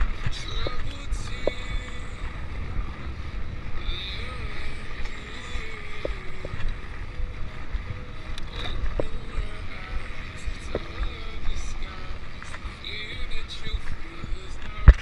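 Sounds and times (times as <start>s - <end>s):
faint clicks: 0.0s - 2.4s, 4.6s - 7.0s, 7.7s - 13.0s
wind rushing over microphone: 0.0s - 15.0s.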